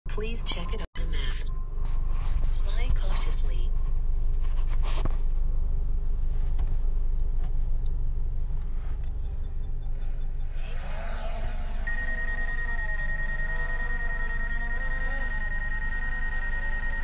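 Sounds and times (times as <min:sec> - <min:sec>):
car engine idling: 0:01.5 - 0:17.0
wavering electronic music: 0:08.4 - 0:17.0
steady high tone: 0:08.7 - 0:17.0.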